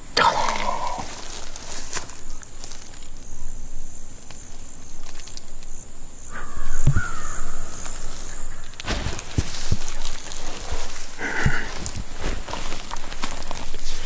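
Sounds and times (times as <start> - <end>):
harsh bird call: 0.0 - 1.3, 6.3 - 8.8
high insect drone: 0.0 - 14.0.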